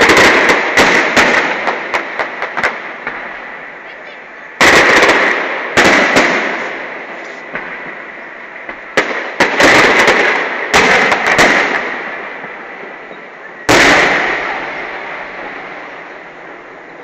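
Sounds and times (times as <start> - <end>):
firework shells bursting: 0.0 - 3.8, 4.5 - 12.5.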